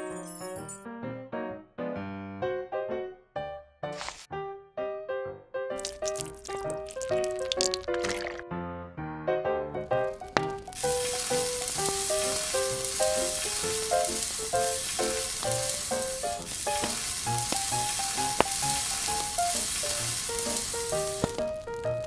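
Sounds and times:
food sizzling on a grill: 5.8s - 8.2s, 10.0s - 22.0s.

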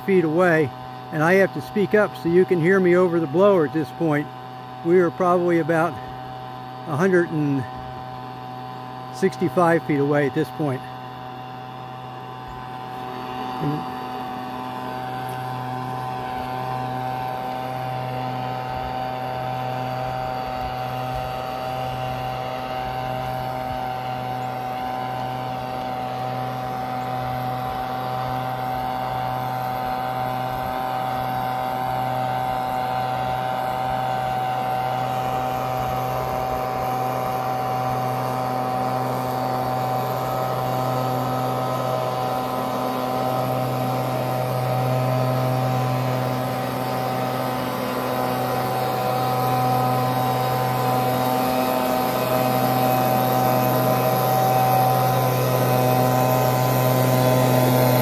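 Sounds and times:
distant leaf blower engine: 0.0s - 58.0s.

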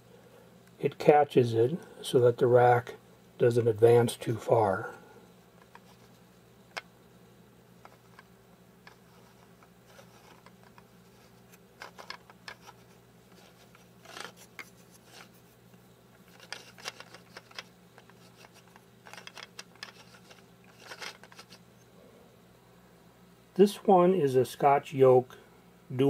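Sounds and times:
plastic gears clicking and scraping: 7.8s - 15.4s, 16.2s - 21.6s.

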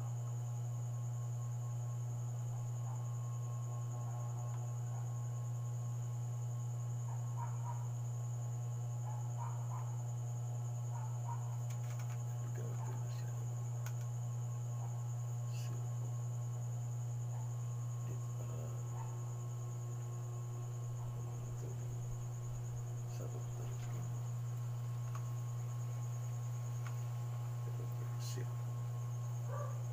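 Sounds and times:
faint high whine: 0.0s - 29.9s
low electrical hum: 0.0s - 29.9s
soft plastic clicks: 13.8s - 14.1s.

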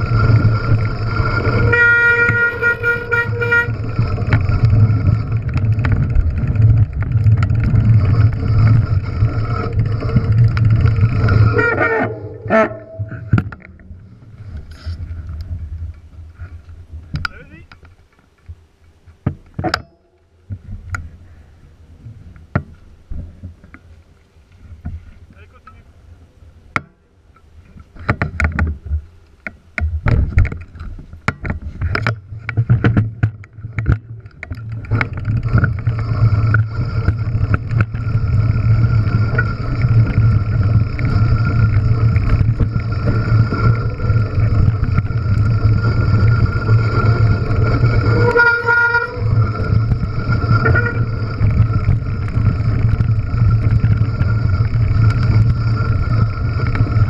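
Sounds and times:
tyres rolling over gravel: 0.0s - 18.4s, 30.2s - 57.0s
bike knocks and clatter: 27.8s - 57.0s.

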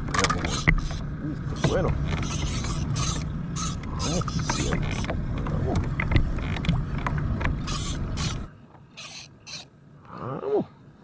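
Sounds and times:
fishing reel cranking and clicking: 0.2s - 5.2s, 7.6s - 9.7s.

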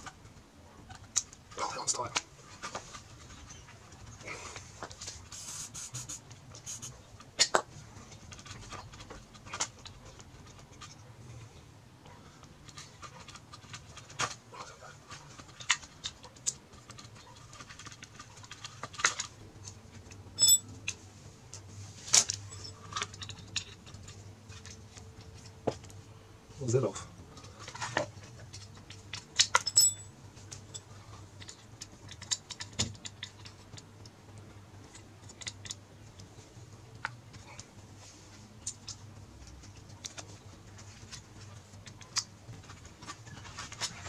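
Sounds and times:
small parts clicking and clinking: 15.4s - 21.0s, 22.1s - 25.2s, 27.6s - 33.9s.

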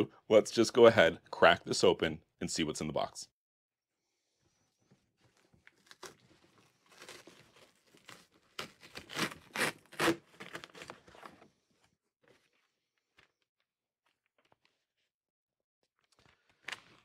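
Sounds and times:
packing paper rustling: 5.2s - 11.5s.

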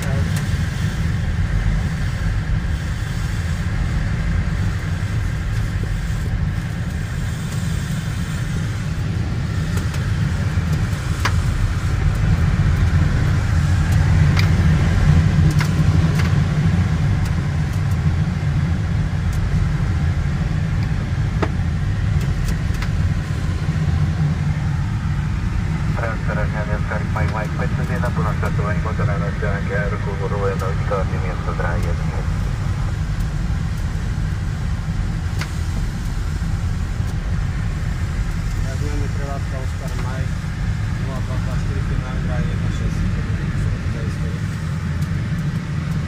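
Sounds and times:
airflow rushing in cockpit: 0.0s - 46.0s
faint clicks: 30.3s - 32.0s.

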